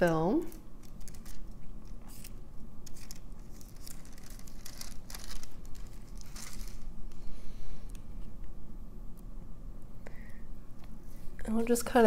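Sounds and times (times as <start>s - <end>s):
plastic film crinkling: 0.0s - 7.3s.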